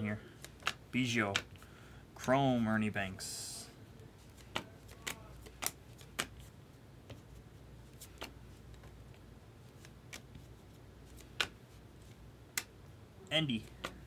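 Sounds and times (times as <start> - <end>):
cards being flipped: 0.4 - 1.6, 4.2 - 12.8, 13.6 - 14.0.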